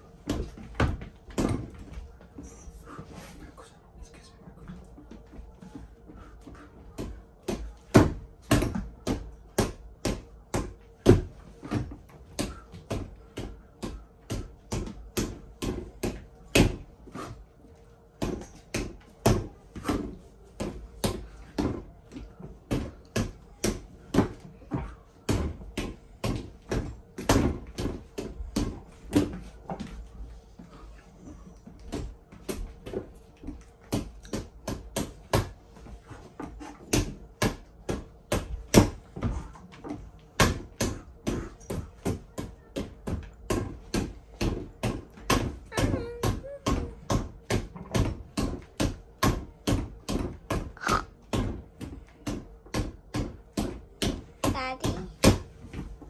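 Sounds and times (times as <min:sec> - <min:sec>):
punches hitting punching bag: 0:07.0 - 0:16.9, 0:36.7 - 0:55.9.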